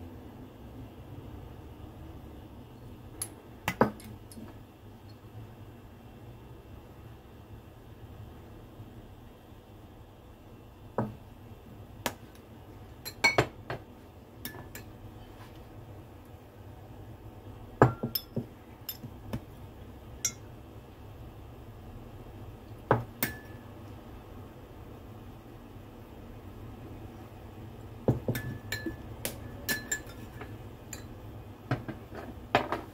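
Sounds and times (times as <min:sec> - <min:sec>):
metal spoon clinking on glass bowl: 0:17.8 - 0:19.1, 0:20.2 - 0:20.4, 0:23.2 - 0:23.6, 0:28.3 - 0:31.2.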